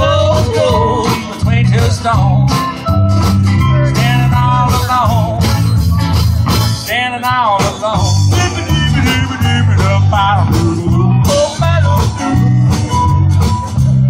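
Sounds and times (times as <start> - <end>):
person singing: 0.0 - 2.7, 3.8 - 5.6, 6.9 - 13.1
country-rock band playing: 0.0 - 14.0
lead guitar bends: 0.0 - 14.0.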